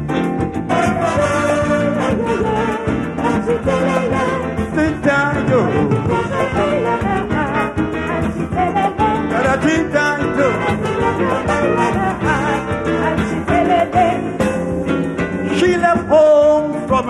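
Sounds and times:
live calypso band playing: 0.0 - 17.0
brass playing the tune: 0.6 - 14.1.

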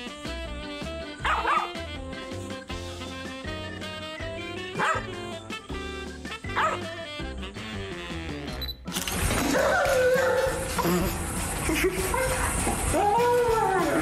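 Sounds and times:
background music: 0.0 - 14.0
puppy yipping: 1.2 - 1.8, 4.8 - 5.1, 6.6 - 6.9.

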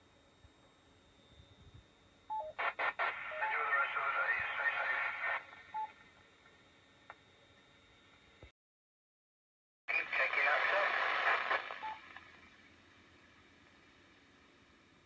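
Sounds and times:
faint high whine: 0.0 - 8.5, 9.9 - 15.0
noisy narrow-band radio audio: 2.4 - 6.2, 9.9 - 12.6.

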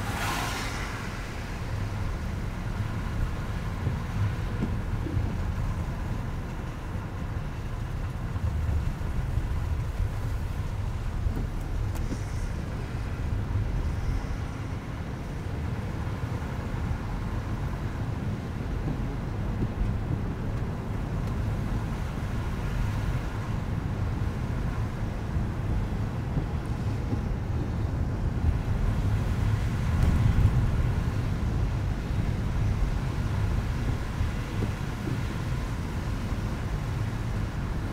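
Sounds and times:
car tyres on wet slush: 0.0 - 37.9.

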